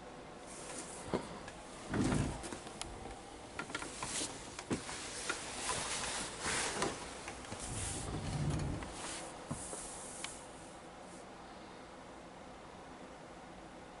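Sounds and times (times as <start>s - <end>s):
light clicks and knocks: 1.1s - 10.4s
fabric rustling: 3.8s - 10.5s.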